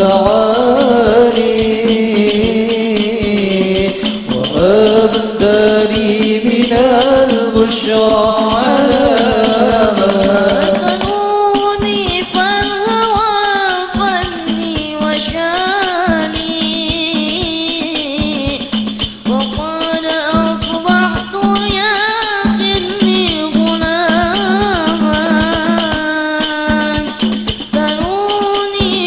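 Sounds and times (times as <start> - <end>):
boy singing devotional song: 0.0 - 29.0
frame drums beating: 0.0 - 29.0.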